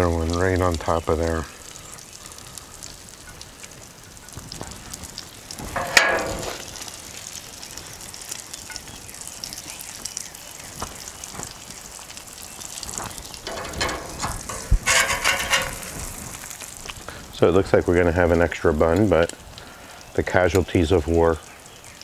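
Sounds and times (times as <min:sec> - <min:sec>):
food sizzling on a griddle: 0:00.0 - 0:22.0.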